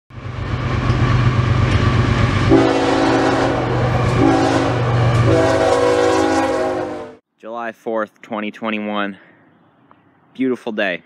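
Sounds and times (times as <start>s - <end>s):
diesel locomotive engine rumble: 0.1s - 7.2s
locomotive air horn chord: 2.5s - 7.2s.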